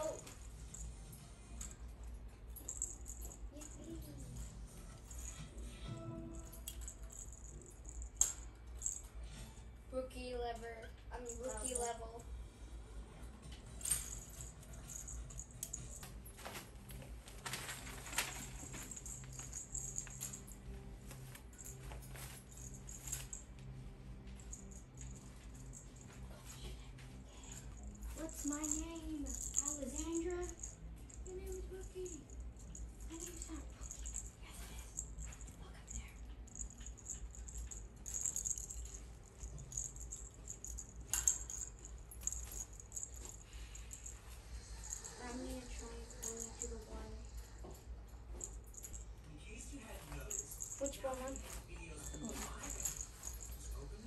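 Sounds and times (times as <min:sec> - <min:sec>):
faint low hum: 0:00.0 - 0:54.0
plastic ball toy rattling: 0:28.1 - 0:34.2.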